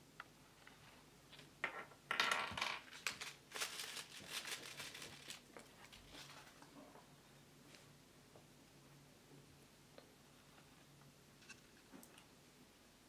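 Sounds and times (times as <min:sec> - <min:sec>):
plastic wrapper crinkling: 0:02.8 - 0:06.7.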